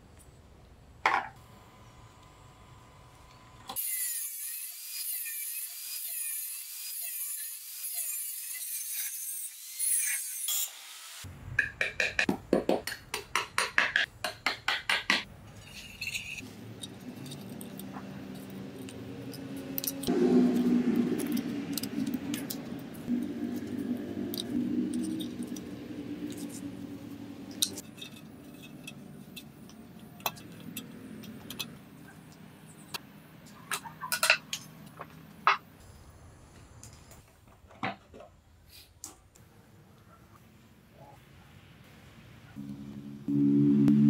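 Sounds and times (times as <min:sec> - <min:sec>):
tie wire scraping: 0:15.5 - 0:31.7.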